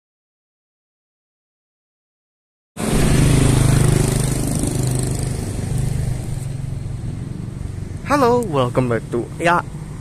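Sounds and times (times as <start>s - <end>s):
small motorcycle engine: 2.8s - 8.4s
street noise: 2.8s - 10.0s.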